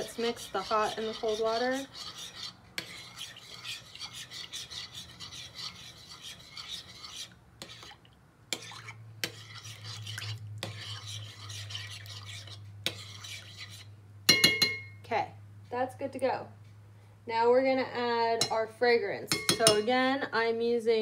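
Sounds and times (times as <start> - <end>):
metal spoon stirring in bowl: 0.0 - 14.9, 19.3 - 20.0
spoon clinking on bowl: 14.3 - 15.0, 19.3 - 19.9.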